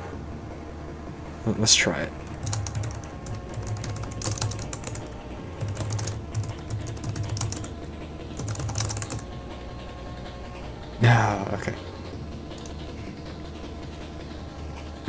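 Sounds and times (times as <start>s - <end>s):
faint background music: 0.0s - 15.0s
computer keyboard typing: 2.2s - 9.3s, 12.6s - 12.8s.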